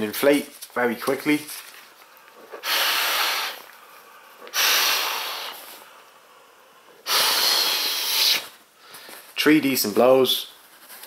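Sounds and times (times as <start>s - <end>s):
breath blown into pillow valve: 2.5s - 9.0s.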